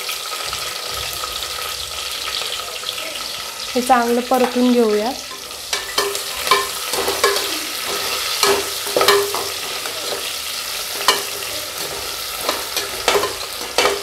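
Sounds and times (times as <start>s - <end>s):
onion sizzling in oil: 0.0s - 14.0s
spoon scraping metal pot: 5.2s - 14.0s.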